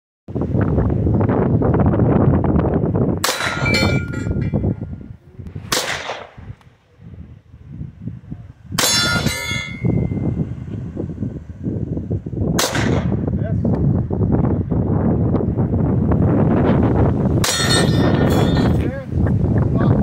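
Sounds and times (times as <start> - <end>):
wind on microphone: 0.3 - 20.0
rifle shots: 3.2 - 3.9, 5.6 - 6.6, 12.6 - 13.2
bullets hitting steel targets: 3.2 - 4.8, 5.7 - 6.4, 8.8 - 10.2, 12.6 - 13.1, 17.4 - 18.8
steel ringing: 3.2 - 5.1, 8.8 - 10.4, 17.4 - 18.8.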